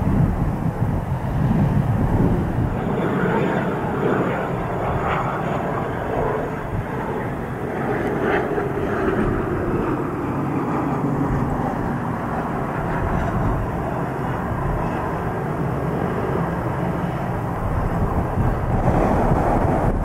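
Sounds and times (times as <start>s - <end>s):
jet rumble: 0.0s - 20.0s
wind buffeting microphone: 0.0s - 20.0s.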